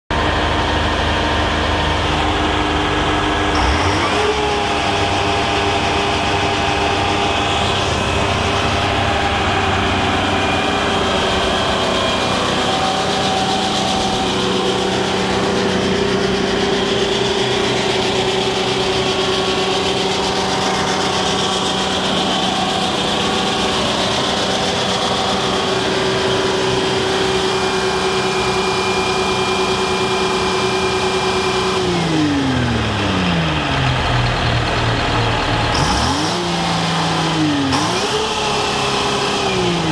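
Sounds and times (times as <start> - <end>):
diesel engine running: 0.1 - 39.9.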